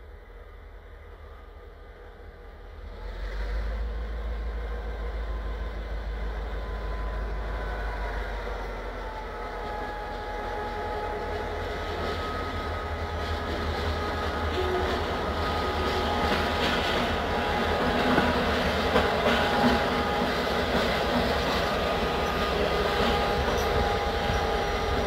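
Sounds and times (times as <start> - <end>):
diesel locomotive engine drone: 0.0 - 25.0.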